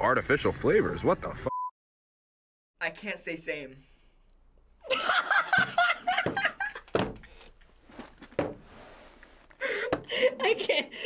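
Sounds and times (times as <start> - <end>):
boy laughing: 4.8 - 7.0, 9.6 - 11.0.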